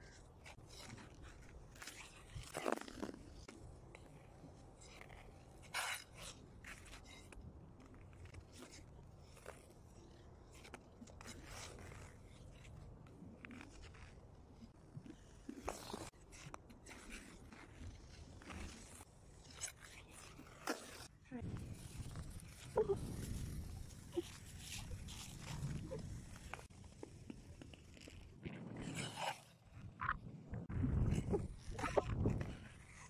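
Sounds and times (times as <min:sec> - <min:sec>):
skate blades scraping ice: 0:00.1 - 0:29.9, 0:31.0 - 0:33.0.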